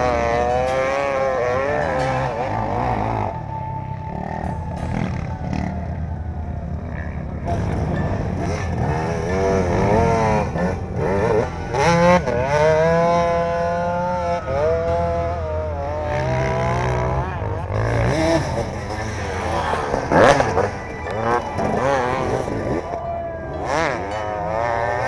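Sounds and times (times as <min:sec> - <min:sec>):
dirt bike engine revving: 0:00.0 - 0:25.0.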